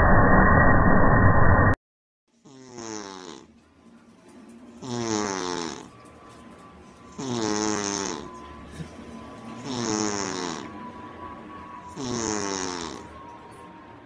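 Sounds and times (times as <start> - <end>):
woman snoring: 2.4 - 3.5, 4.8 - 5.9, 7.1 - 8.4, 9.6 - 10.8, 11.9 - 13.2.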